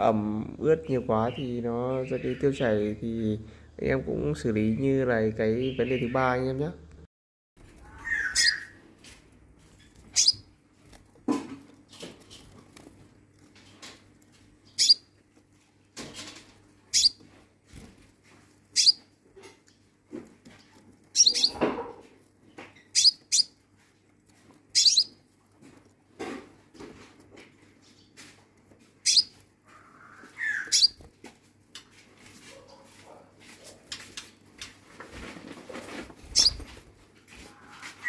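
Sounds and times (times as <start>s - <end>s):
bird chirping high-pitched: 0.7s - 3.0s, 5.4s - 6.6s, 7.8s - 8.8s, 9.9s - 10.5s, 14.6s - 15.1s, 16.9s - 17.4s, 18.7s - 19.2s, 21.1s - 21.7s, 22.6s - 23.6s, 24.7s - 25.2s, 29.0s - 31.1s, 36.3s - 36.8s.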